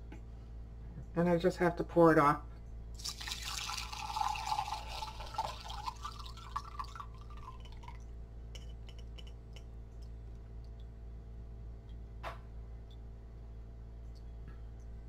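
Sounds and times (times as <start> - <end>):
liquid trickling into glass: 3.0 - 9.3.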